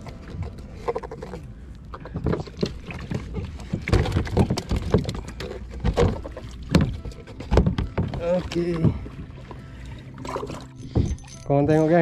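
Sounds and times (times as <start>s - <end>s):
water splashing against kayak: 1.9s - 10.8s.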